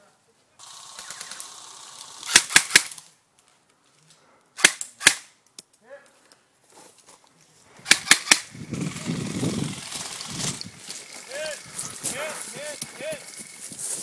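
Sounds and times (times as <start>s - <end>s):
airsoft rifle shots: 2.2s - 3.0s, 4.6s - 5.3s, 7.8s - 8.5s
rustling movement: 6.1s - 14.0s.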